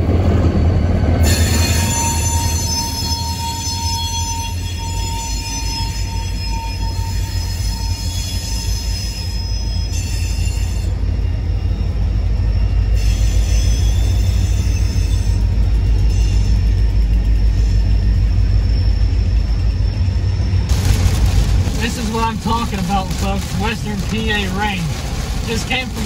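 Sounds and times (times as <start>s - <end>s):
freight cars rumbling: 0.0s - 3.5s, 10.6s - 26.0s
diesel locomotives passing: 0.0s - 26.0s
wheel squeal: 1.2s - 20.6s.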